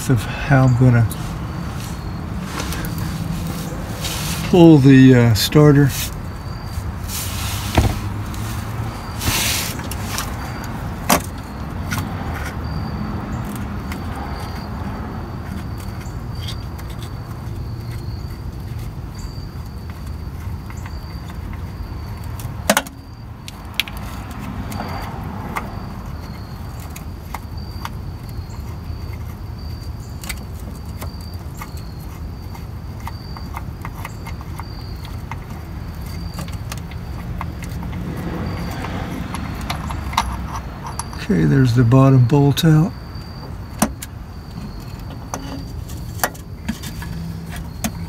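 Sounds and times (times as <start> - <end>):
steady low rumble: 0.0 - 12.8.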